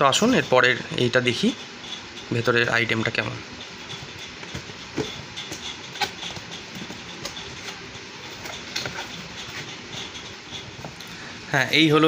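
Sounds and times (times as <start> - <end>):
cardboard rustling and scraping: 4.0 - 11.0.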